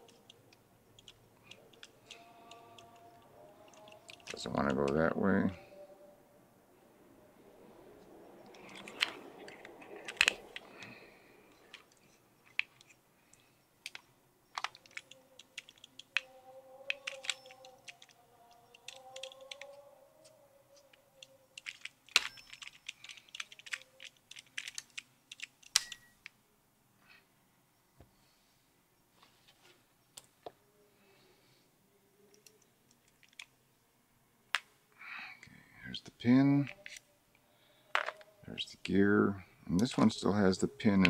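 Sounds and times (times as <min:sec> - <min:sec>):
small metallic clicks and scrapes: 0:01.0 - 0:05.0, 0:08.5 - 0:19.7, 0:20.8 - 0:26.3, 0:32.3 - 0:33.5, 0:36.6 - 0:37.1
faint wavering squeak: 0:16.0 - 0:21.6.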